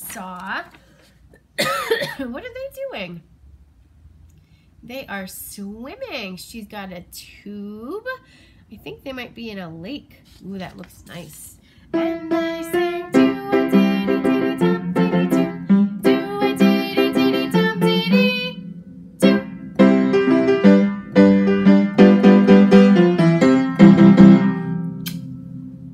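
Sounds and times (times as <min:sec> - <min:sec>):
bouncy piano-style keyboard tune: 0:12.0 - 0:18.6, 0:19.2 - 0:25.9.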